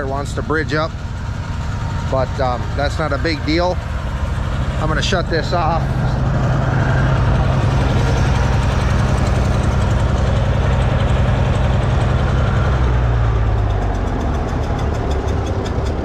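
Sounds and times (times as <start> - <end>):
tractor engine slowing to idle: 0.0 - 16.0.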